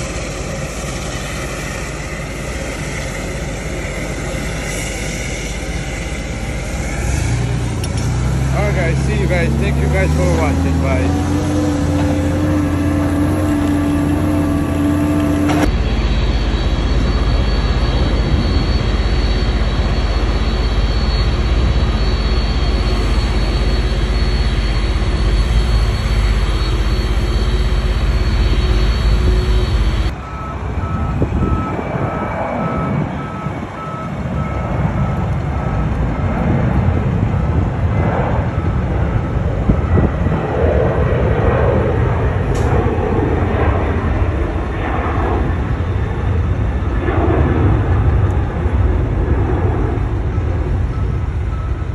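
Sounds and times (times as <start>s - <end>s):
forklift engine running: 0.0s - 37.6s
jet engines rumbling: 0.0s - 51.9s.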